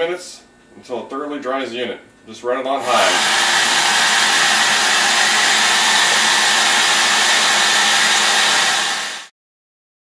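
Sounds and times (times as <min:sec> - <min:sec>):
hair dryer blowing air: 0:02.8 - 0:09.3.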